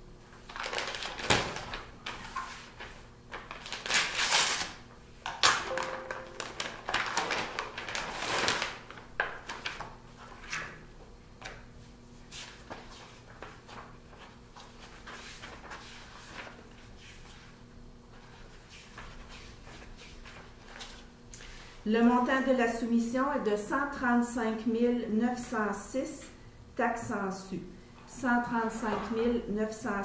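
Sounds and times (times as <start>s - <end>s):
paper rustling and crinkling: 0.5s - 4.8s, 5.7s - 10.7s, 12.4s - 17.5s.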